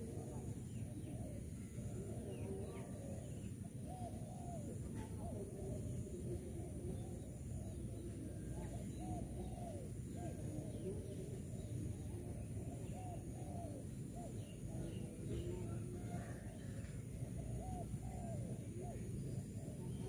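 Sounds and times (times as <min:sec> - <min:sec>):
dove cooing: 0:00.0 - 0:20.0.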